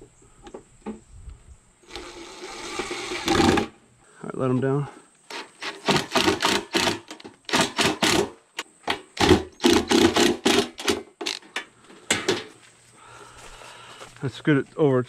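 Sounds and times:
cordless drill driving screws: 1.9 - 3.7.

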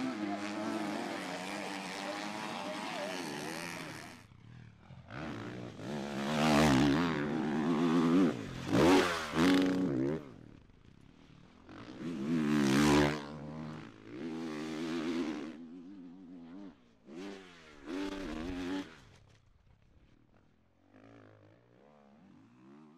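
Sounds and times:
motocross bike engine revving: 0.0 - 10.4, 11.7 - 15.7, 17.1 - 19.0.

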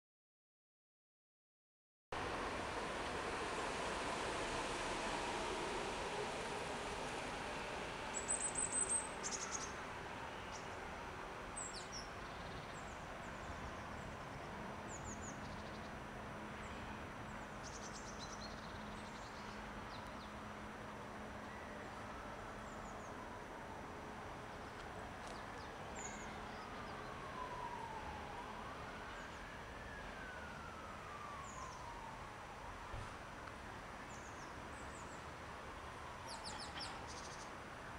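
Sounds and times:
city traffic hum: 2.2 - 37.9
siren wailing: 26.1 - 32.9.

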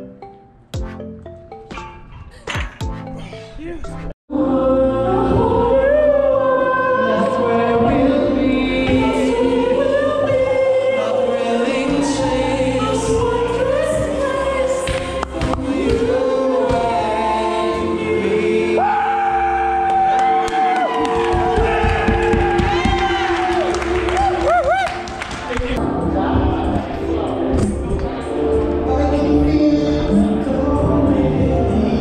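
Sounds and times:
music: 0.0 - 32.0
men singing into microphone: 4.4 - 18.9, 26.2 - 32.0.

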